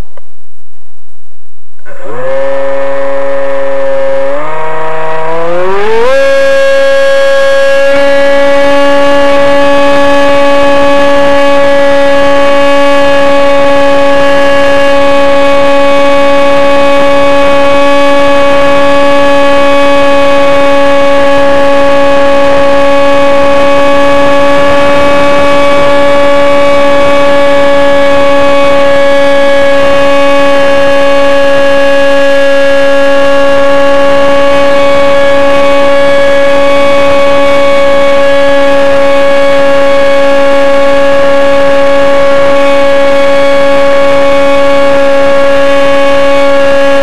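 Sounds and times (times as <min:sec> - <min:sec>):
model plane motor whine: 0:01.8 - 0:47.0.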